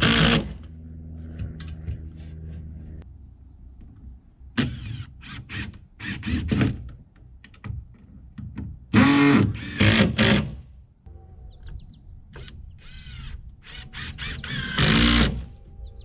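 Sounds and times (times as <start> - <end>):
cordless drill driving screws: 9.0 - 10.5, 12.4 - 15.4.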